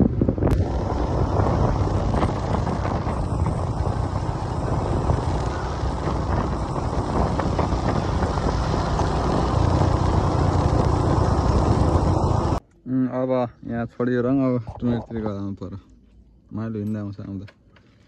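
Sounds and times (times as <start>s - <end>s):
motorcycle engine rumble: 0.0s - 12.6s
wind noise on microphone: 0.0s - 12.6s.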